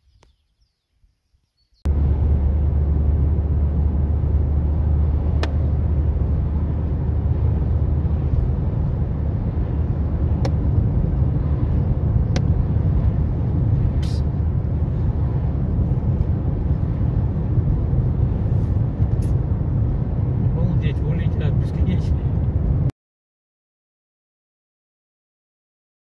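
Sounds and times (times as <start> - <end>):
car engine rumble and road noise: 1.8 - 22.9.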